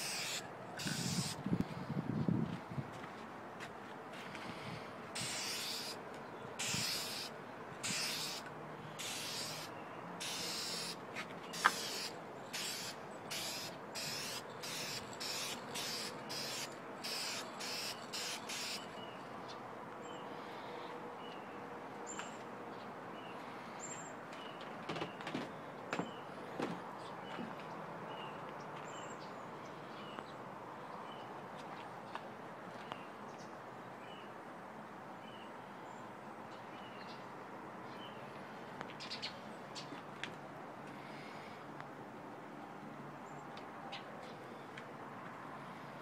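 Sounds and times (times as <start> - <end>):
aerosol spray can hissing: 0.0 - 1.4, 5.2 - 6.0, 6.6 - 8.4, 9.0 - 11.0, 11.6 - 18.8.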